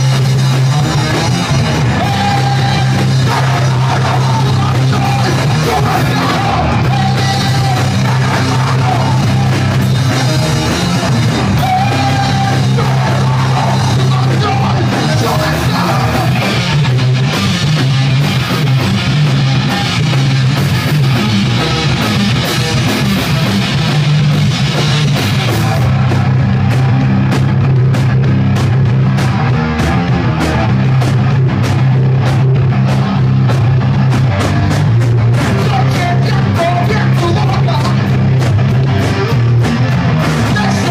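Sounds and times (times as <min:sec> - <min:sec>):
rock band playing live: 0:00.0 - 0:40.9
person yelling lead vocal: 0:01.7 - 0:10.5, 0:11.3 - 0:16.8, 0:35.4 - 0:38.1, 0:40.4 - 0:40.9.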